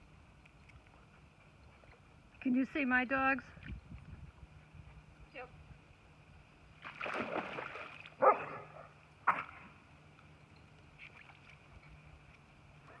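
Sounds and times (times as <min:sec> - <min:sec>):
dog splashing in water: 0:06.8 - 0:08.2
water sloshing: 0:06.8 - 0:08.6.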